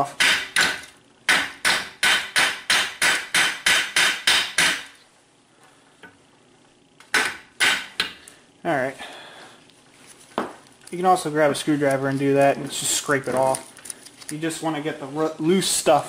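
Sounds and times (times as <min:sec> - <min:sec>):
hammer striking metal: 0:00.0 - 0:04.9.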